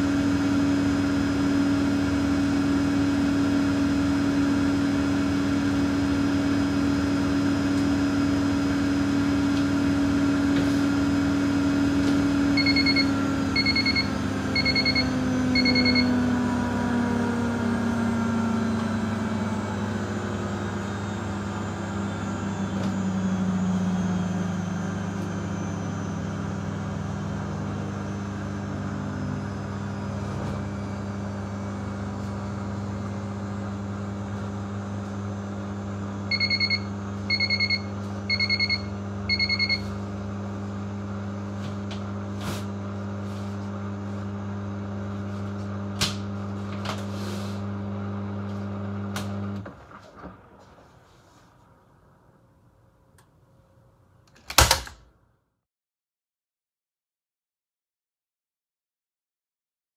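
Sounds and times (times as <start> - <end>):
washing machine spinning: 0.0 - 42.3
short beeps: 12.6 - 16.1, 36.3 - 39.9.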